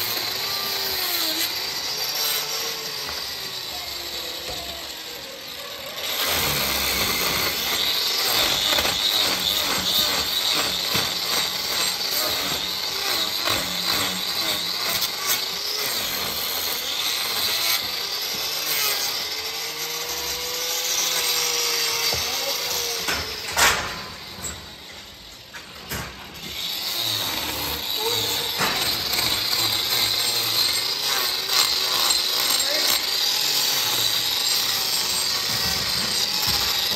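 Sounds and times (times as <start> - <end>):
angle grinder grinding hoof: 0.0 - 36.9.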